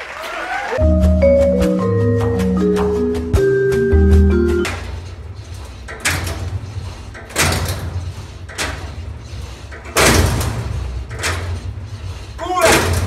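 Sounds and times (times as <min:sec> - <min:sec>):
mallet music jingle: 0:00.8 - 0:04.7
weight stack clanking: 0:01.5 - 0:13.0.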